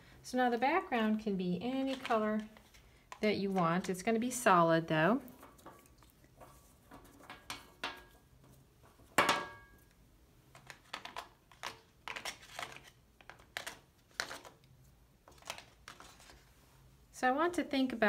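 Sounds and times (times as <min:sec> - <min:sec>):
pastel sticks clattering together: 0:10.5 - 0:14.6.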